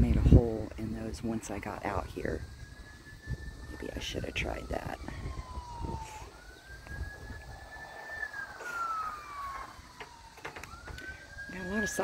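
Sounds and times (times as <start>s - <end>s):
emergency vehicle siren wailing: 0.0s - 12.0s.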